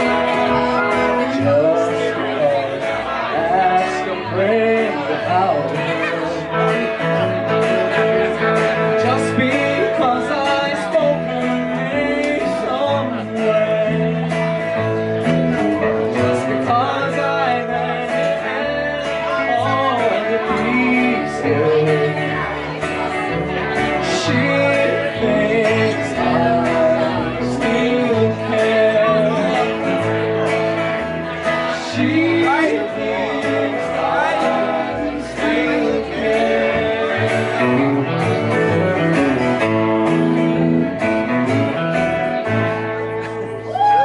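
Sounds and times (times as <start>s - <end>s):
person singing: 0.0s - 8.2s, 15.7s - 22.8s, 23.7s - 30.6s, 31.2s - 41.6s
electric guitar: 0.0s - 44.0s
upright bass: 0.0s - 44.0s.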